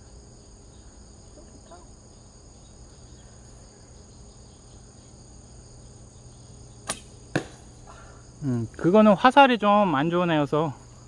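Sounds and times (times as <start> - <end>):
crickets chirring: 0.0 - 11.0
bowstring snap: 6.8 - 7.6.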